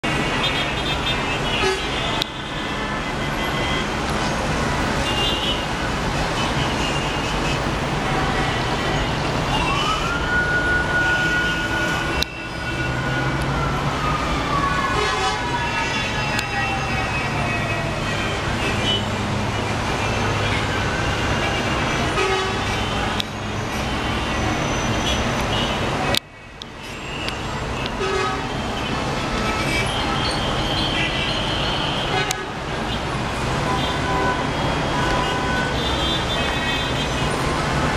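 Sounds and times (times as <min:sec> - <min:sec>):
traffic engines din: 0:00.0 - 0:37.9
siren: 0:08.0 - 0:32.5.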